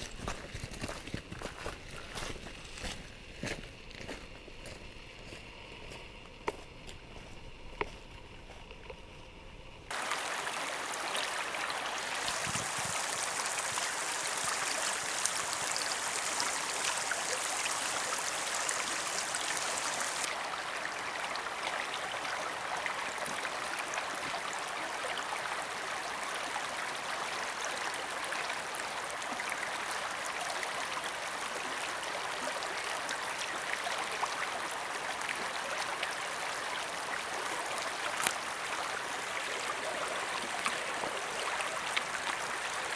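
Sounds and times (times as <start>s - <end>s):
water running over stones: 9.9s - 42.9s.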